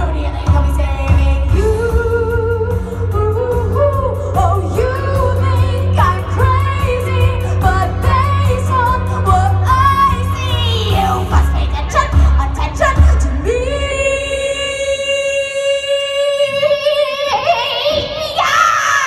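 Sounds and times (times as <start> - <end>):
instrumental accompaniment with heavy bass: 0.0 - 14.8
woman singing: 0.0 - 19.0.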